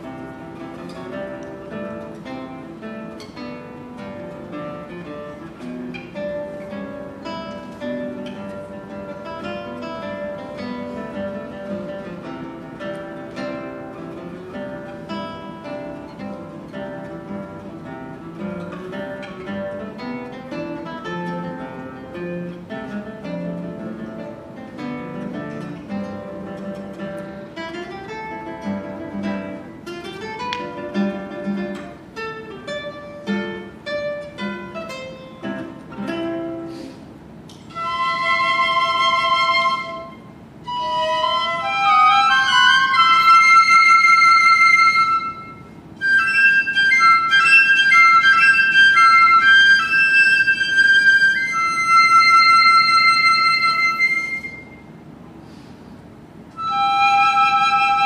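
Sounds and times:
classical guitar playing: 0.0 - 58.0
piccolos playing high notes: 37.7 - 54.8.

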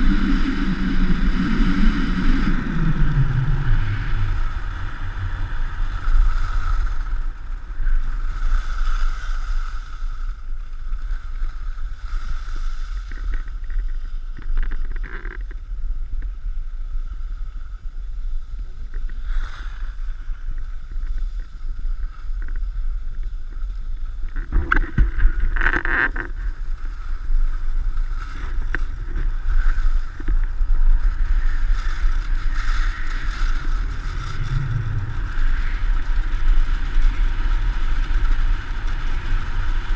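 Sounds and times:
wind buffeting microphone: 0.0 - 12.1, 19.9 - 39.9
skis scraping on packed snow: 0.0 - 14.4, 24.9 - 39.9.

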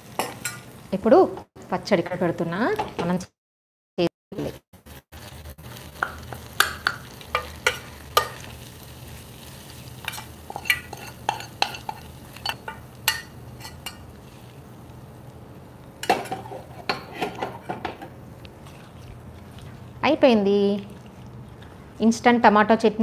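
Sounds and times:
oil sizzling: 0.0 - 1.5, 4.5 - 22.8
steel spoon clinking on pan: 6.0 - 8.5, 10.0 - 14.1.

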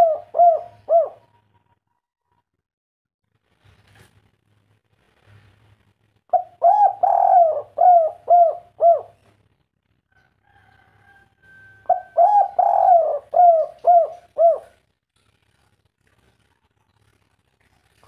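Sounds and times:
dove cooing: 0.0 - 1.5, 6.3 - 9.3, 11.6 - 14.9.

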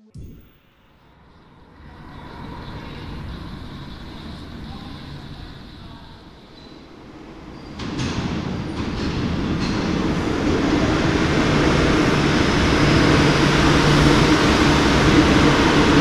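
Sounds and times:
low hum: 0.0 - 6.1
train wheels rumbling on rails: 1.8 - 16.0.

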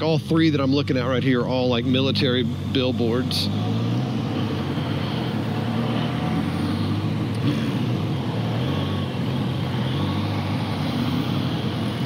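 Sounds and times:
traffic passing: 0.0 - 12.0.

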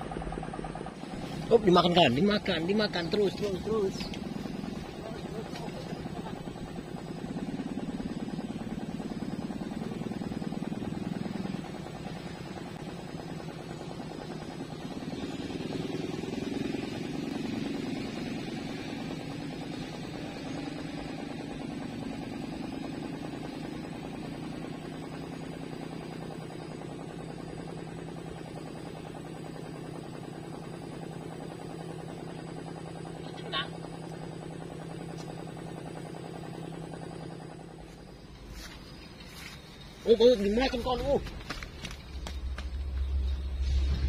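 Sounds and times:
low engine drone: 0.0 - 44.0.

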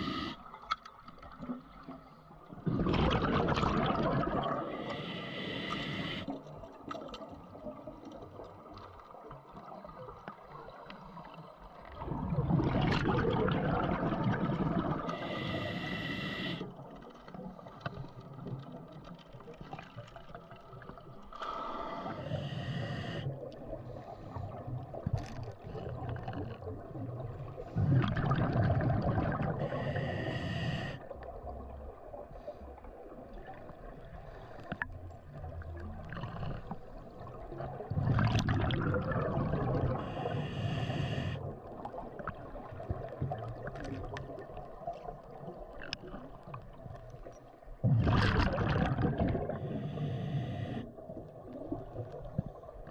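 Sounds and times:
bubbling exhale: 0.0 - 0.4, 2.6 - 6.3, 12.0 - 16.7, 21.4 - 24.7, 27.5 - 31.0, 37.8 - 41.6, 47.8 - 51.1
diver inhaling through regulator: 0.0 - 0.4, 4.6 - 6.3, 15.0 - 16.7, 21.4 - 24.6, 27.7 - 31.1, 39.2 - 41.5, 48.7 - 51.0.

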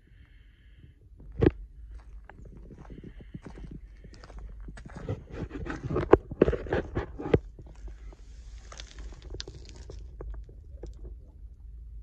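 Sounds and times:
low rumble: 0.0 - 12.0
footsteps on dirt and gravel: 1.2 - 10.4
soft rustle: 2.0 - 10.9.

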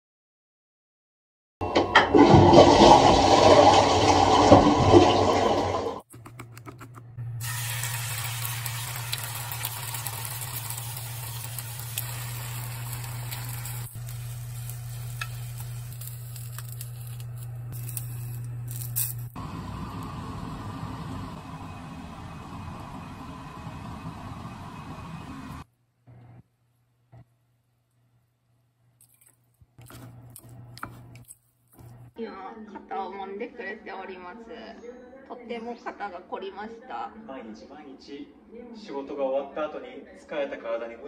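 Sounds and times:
toilet flushing: 1.6 - 6.0, 7.4 - 14.6
steady low hum: 11.8 - 29.0.

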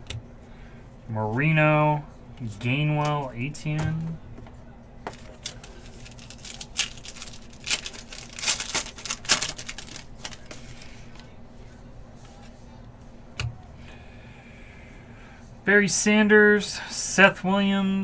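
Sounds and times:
wrapper tearing and crinkling: 5.1 - 10.8.

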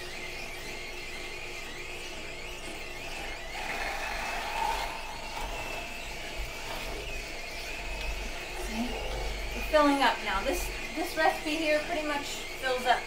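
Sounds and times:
juicer motor whirring: 0.0 - 13.0
high whine of crushing gears: 2.7 - 13.0.

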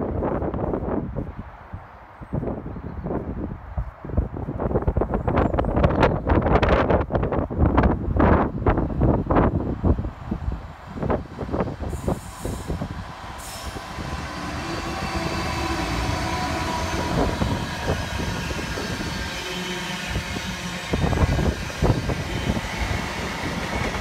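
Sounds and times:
wind buffeting microphone: 0.0 - 24.0
diesel locomotive engine: 5.0 - 24.0
freight wagons rail rumble: 7.7 - 24.0.

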